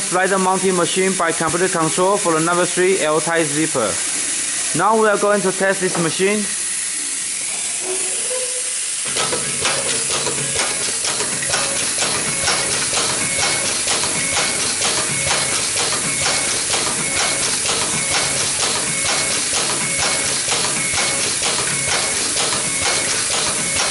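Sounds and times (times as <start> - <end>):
machine low hum: 0.0 - 23.9
fast even machine clicking: 9.0 - 23.9.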